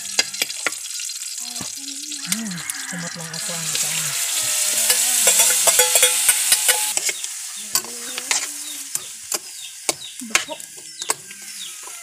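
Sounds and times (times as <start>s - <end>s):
chicken sizzling in hot oil: 0.0s - 12.0s
metal spatula scraping a wok: 3.1s - 12.0s.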